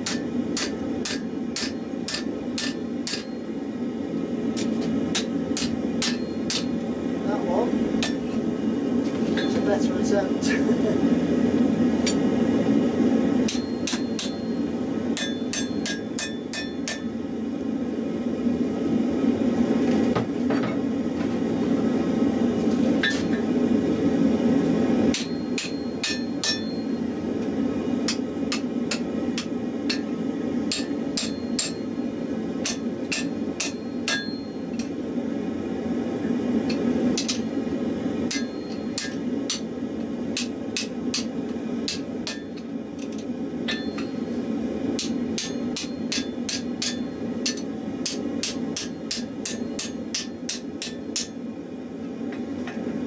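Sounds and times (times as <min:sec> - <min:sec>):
hammer striking steel on anvil: 0:00.0 - 0:03.5, 0:04.6 - 0:06.8, 0:08.0 - 0:08.3, 0:09.4 - 0:09.7, 0:12.0 - 0:12.3, 0:13.4 - 0:17.2, 0:23.0 - 0:23.4, 0:25.1 - 0:27.0, 0:28.0 - 0:32.0, 0:32.6 - 0:35.0, 0:36.7 - 0:37.5, 0:38.3 - 0:39.7, 0:40.3 - 0:44.4, 0:45.0 - 0:51.5.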